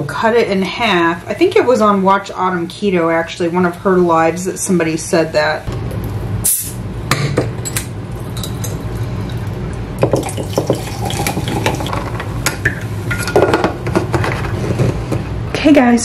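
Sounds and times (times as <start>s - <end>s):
sparkling water pouring: 8.1s - 11.9s.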